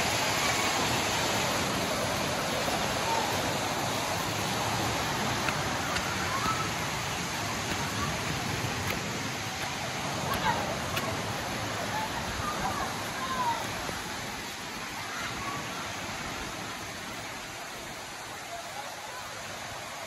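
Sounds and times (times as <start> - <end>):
water rushing over rocks: 0.0 - 20.0.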